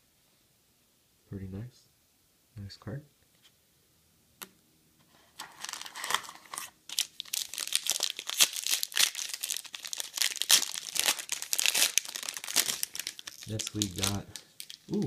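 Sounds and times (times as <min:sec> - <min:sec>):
foil pack crinkling: 0:05.3 - 0:15.0.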